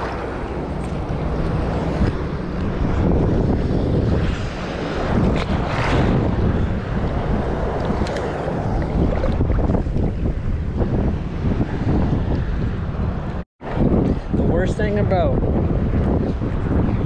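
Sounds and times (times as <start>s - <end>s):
waves sloshing: 0.0s - 2.8s, 4.5s - 10.6s
wind buffeting microphone: 0.0s - 17.0s.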